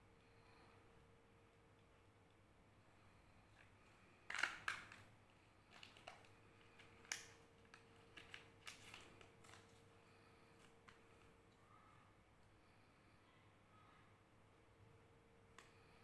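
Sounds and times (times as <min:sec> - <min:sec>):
foil lid crinkling and peeling: 0:04.3 - 0:09.8.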